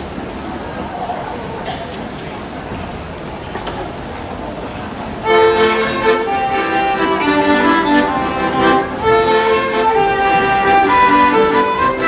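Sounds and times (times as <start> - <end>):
violin folk melody: 5.2 - 12.0.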